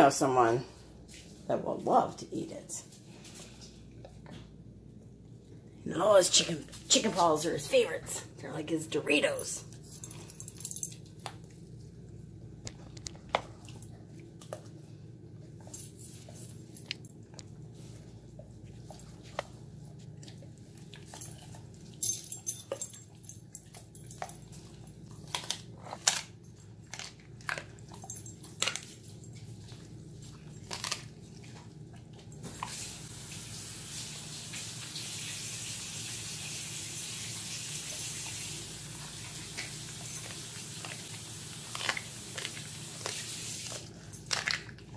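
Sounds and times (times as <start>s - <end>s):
dog chewing bones: 10.0s - 32.7s, 39.0s - 44.9s.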